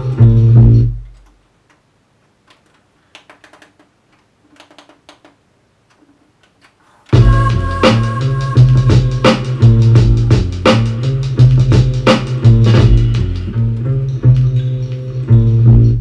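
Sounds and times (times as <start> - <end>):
hip-hop beat: 7.1 - 16.0.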